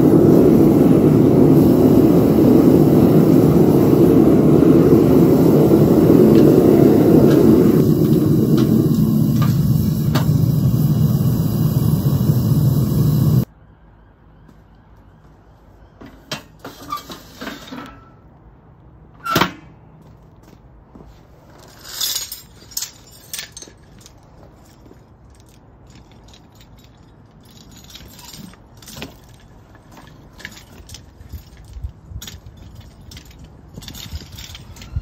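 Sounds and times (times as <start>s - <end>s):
gas burner rushing: 0.0s - 13.5s
chain rattling: 21.7s - 35.0s.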